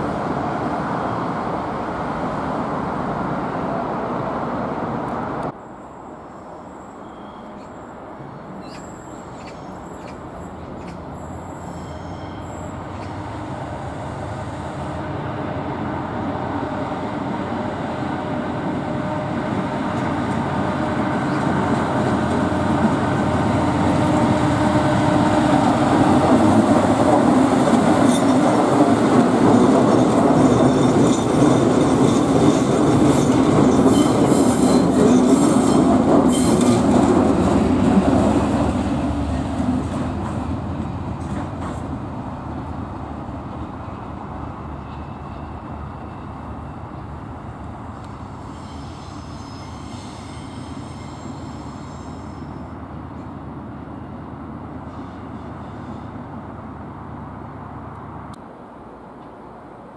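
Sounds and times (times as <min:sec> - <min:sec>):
diesel locomotive engine hum: 0:00.0 - 0:59.9
train wheels clicking on rails: 0:25.6 - 0:42.6.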